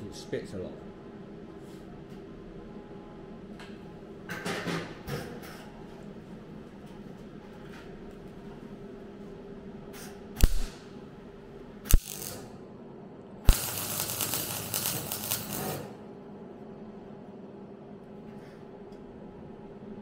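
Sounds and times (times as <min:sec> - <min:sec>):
steady low hum: 0:00.0 - 0:20.0
welder arc crackling: 0:10.4 - 0:10.8, 0:11.9 - 0:12.5, 0:13.5 - 0:16.0.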